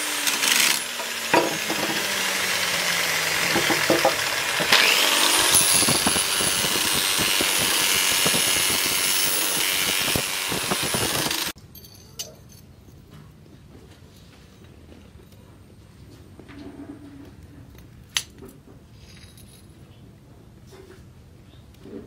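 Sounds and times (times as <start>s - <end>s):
angle grinder sanding steel: 0.0s - 11.6s.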